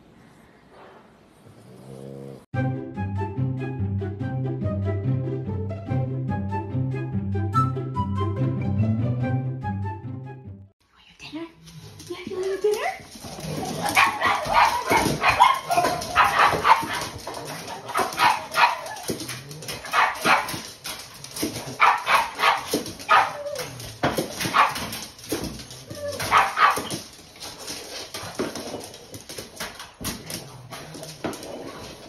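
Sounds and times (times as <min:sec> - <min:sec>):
dogs barking and yipping: 0:13.0 - 0:30.0.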